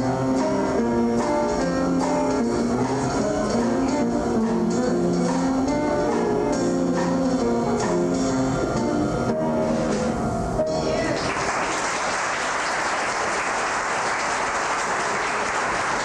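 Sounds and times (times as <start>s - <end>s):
stage musical song: 0.0s - 16.0s
audience applause: 11.1s - 16.0s.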